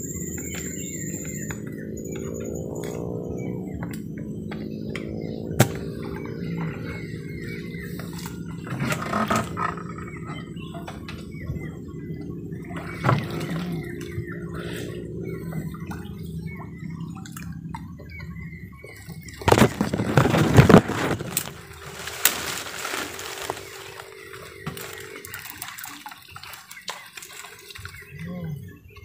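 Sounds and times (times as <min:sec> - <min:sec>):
steady low hum: 0:00.0 - 0:26.5
birds chirping: 0:00.0 - 0:29.0
water dripping and splashing: 0:15.5 - 0:28.2.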